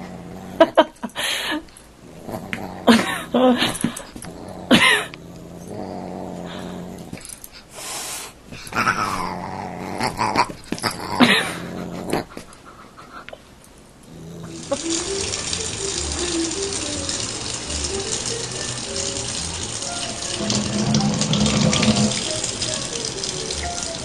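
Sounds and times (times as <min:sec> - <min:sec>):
dog and cat growling: 0:00.0 - 0:01.0, 0:02.0 - 0:07.5, 0:08.6 - 0:13.1, 0:14.0 - 0:16.0, 0:19.4 - 0:24.0
kitchen tap running: 0:14.5 - 0:24.0.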